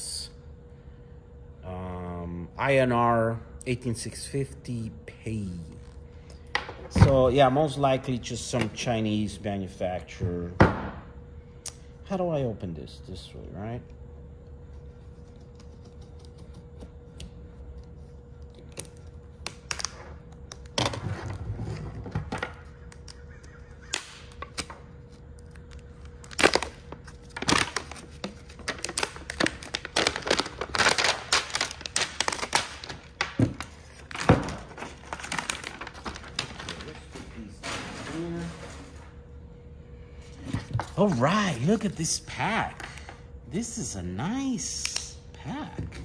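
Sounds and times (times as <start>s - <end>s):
faint steady hum: 0.0s - 46.0s
plastic wrap crackling: 25.4s - 37.1s.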